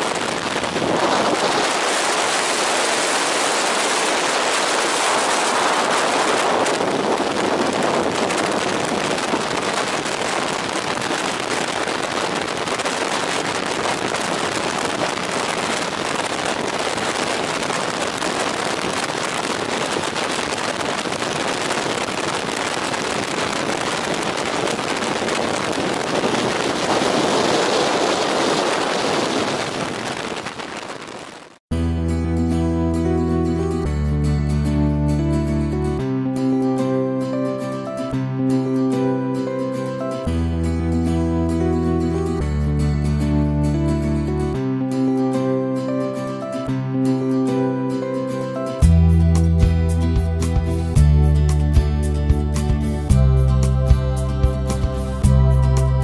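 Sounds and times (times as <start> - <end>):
wind buffeting microphone: 0.0 - 31.6.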